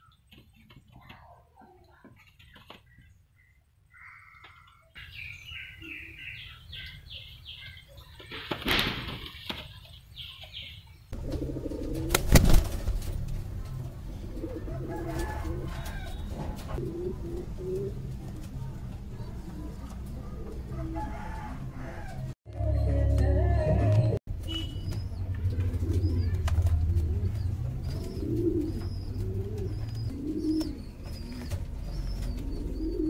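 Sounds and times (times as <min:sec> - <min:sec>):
pigeons chirping: 0:00.0 - 0:22.9, 0:24.3 - 0:33.0
wings flapping: 0:08.2 - 0:09.8, 0:11.2 - 0:13.8
pigeons cooing: 0:11.2 - 0:12.2, 0:14.0 - 0:18.5, 0:25.4 - 0:33.0.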